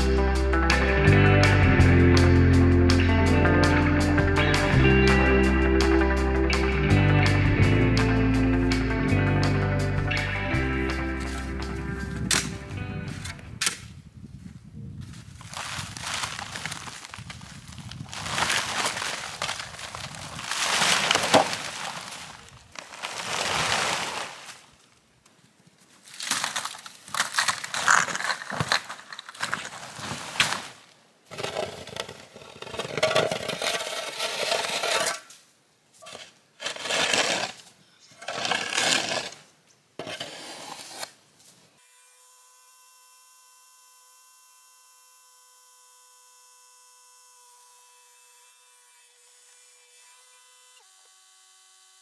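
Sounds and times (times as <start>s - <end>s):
plastic tarp rustling and scraping: 15.4s - 24.8s, 27.2s - 35.1s.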